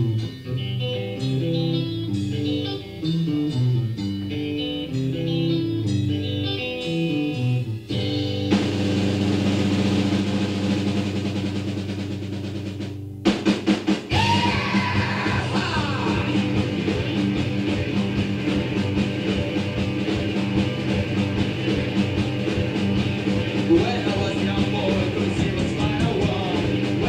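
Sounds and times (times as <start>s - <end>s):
electric guitar notes: 0.0s - 13.3s, 14.1s - 27.0s
live pop rock band: 0.0s - 27.0s
drum hits: 8.5s - 27.0s.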